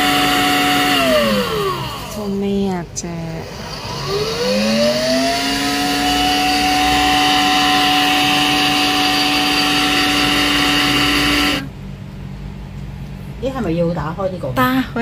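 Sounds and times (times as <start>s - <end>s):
blender motor whining: 0.0s - 2.4s, 3.3s - 11.7s.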